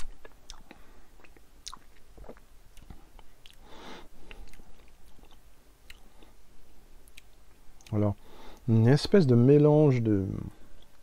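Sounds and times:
wet lip and tongue clicks: 0.0s - 6.3s, 7.0s - 8.0s.

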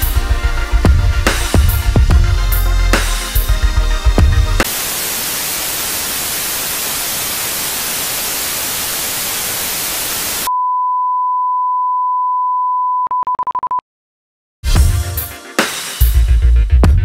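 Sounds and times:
white noise static hiss: 4.6s - 10.5s
short beeps: 10.5s - 13.8s.

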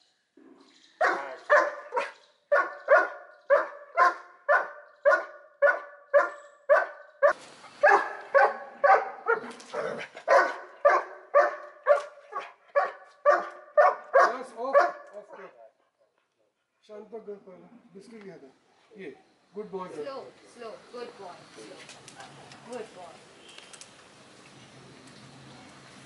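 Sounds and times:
dog barking: 1.0s - 15.1s.

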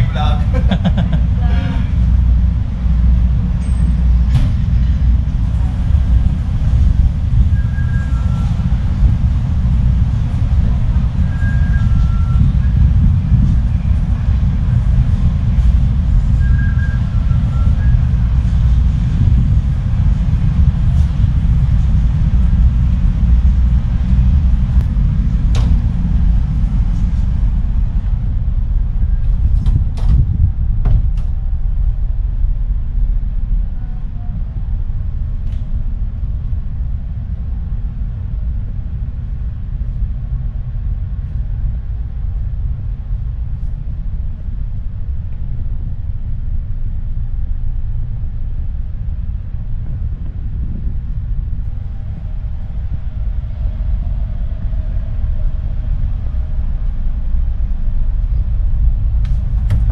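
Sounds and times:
ferry engines rumbling: 0.0s - 59.9s.

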